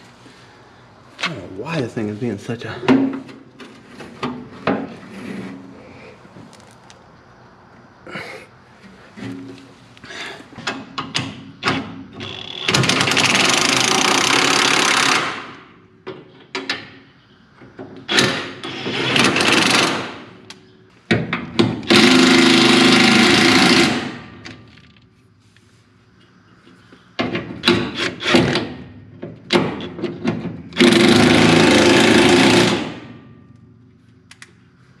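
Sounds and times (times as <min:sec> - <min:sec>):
power tool hammering: 0:21.6 - 0:24.3, 0:30.7 - 0:33.2.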